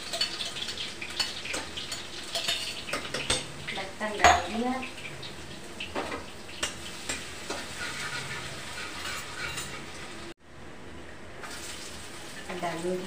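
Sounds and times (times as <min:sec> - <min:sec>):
metal spoon clinking on pan: 0:00.0 - 0:03.5
garlic sizzling in hot oil: 0:00.0 - 0:10.4, 0:11.4 - 0:13.0.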